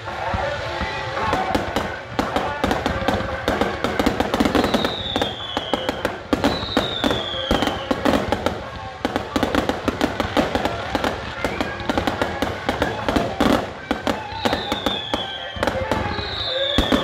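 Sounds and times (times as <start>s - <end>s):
fireworks bangs and crackles: 0.0s - 17.0s
falling firework whistles: 3.2s - 8.4s, 10.5s - 17.0s.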